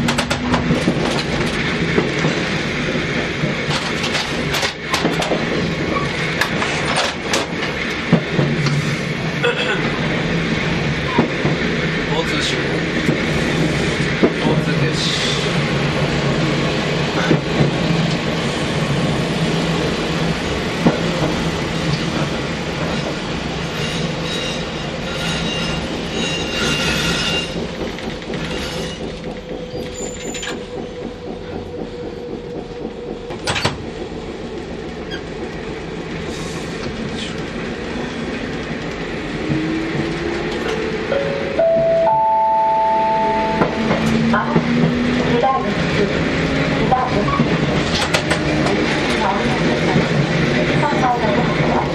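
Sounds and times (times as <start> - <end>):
tram motor and wheel noise: 0.0 - 51.9.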